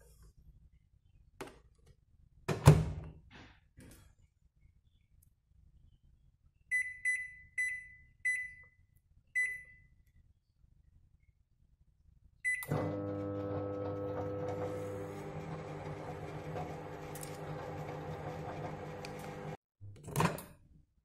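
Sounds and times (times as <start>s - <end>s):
microwave keypad beeps: 6.7s - 8.8s, 9.4s - 9.9s, 12.4s - 12.8s
microwave oven humming: 12.7s - 19.6s.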